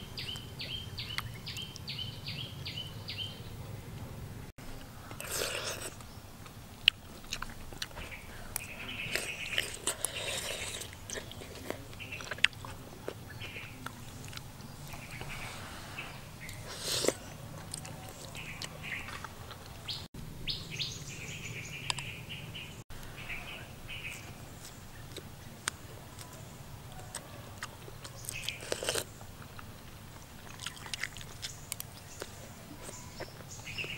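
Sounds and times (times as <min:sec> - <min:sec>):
small birds chirping: 0:00.0 - 0:03.8, 0:05.2 - 0:33.9
person chewing food: 0:05.0 - 0:15.5, 0:16.4 - 0:20.0, 0:24.1 - 0:33.9.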